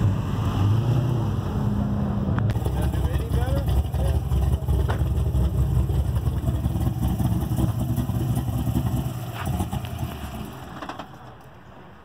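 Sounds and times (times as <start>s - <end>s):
car engine idling: 2.2s - 11.5s.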